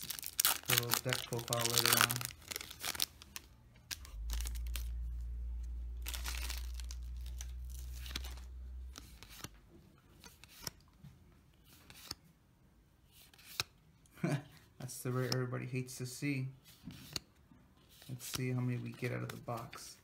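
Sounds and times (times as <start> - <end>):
foil wrapper tearing and crinkling: 0.0 - 3.2
cards rustling and clicking: 0.0 - 5.0, 6.0 - 11.0, 11.6 - 12.2, 13.1 - 13.8, 16.7 - 20.0
steady low hum: 3.4 - 9.9.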